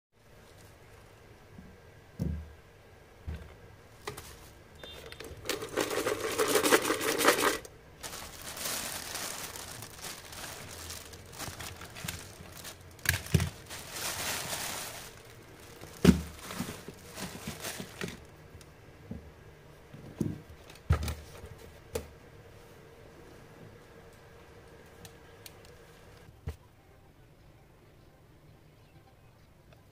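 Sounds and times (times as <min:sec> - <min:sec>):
toothpicks rattling in container: 0:05.4 - 0:07.7
soft rustling: 0:07.3 - 0:18.2.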